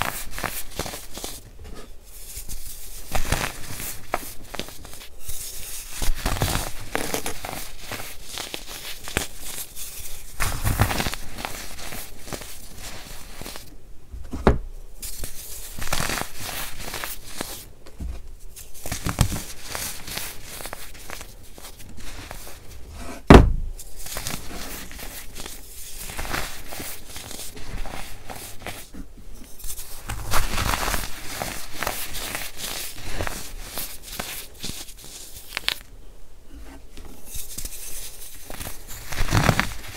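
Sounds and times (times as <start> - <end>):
hands crunching baking soda powder: 0.0 - 1.4, 2.1 - 13.7, 15.0 - 17.6, 23.9 - 28.9, 29.7 - 35.8, 37.3 - 39.9.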